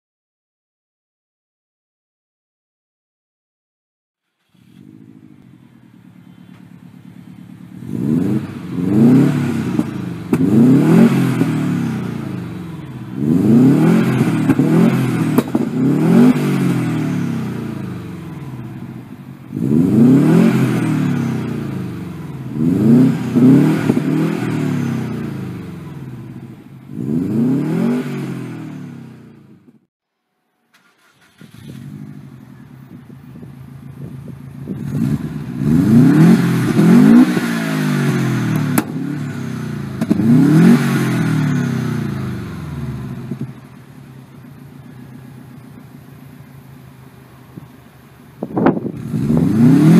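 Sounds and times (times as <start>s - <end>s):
car engine idling: 4.4s - 27.2s, 30.6s - 37.2s, 37.8s - 49.9s
car engine revving: 4.4s - 29.9s, 30.8s - 49.9s.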